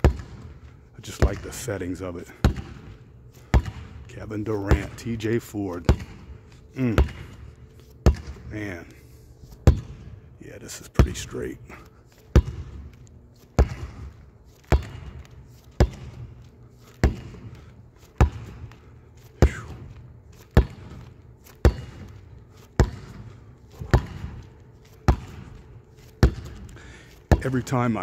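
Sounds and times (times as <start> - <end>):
basketball bouncing on hardwood: 0.0 - 0.5, 1.2 - 1.7, 2.4 - 4.0, 4.6 - 5.0, 5.8 - 6.3, 8.0 - 8.5, 9.7 - 10.0, 12.3 - 13.0, 13.6 - 16.4, 17.0 - 20.0, 20.6 - 22.2, 22.8 - 25.6, 26.2 - 27.7.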